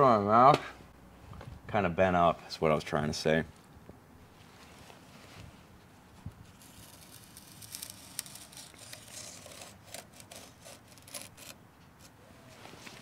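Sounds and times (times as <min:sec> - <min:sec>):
gloved hands scraping steel: 0:06.4 - 0:12.3.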